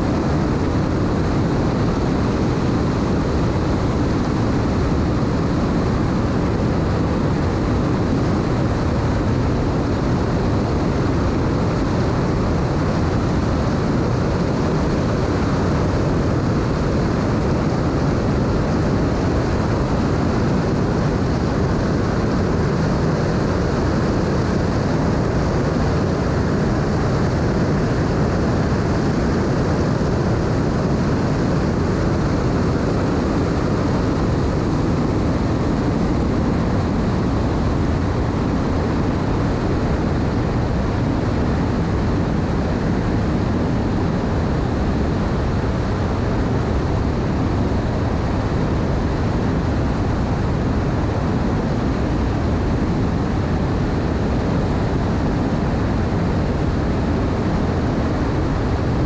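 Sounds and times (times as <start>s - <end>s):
wind and water noise: 0.0s - 59.0s.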